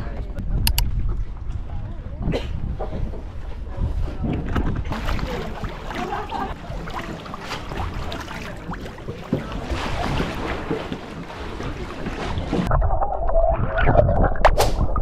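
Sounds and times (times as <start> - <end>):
wind on microphone: 0.0 - 15.0
muffled underwater splashing: 3.9 - 15.0
seawater sloshing and splashing: 4.0 - 12.7.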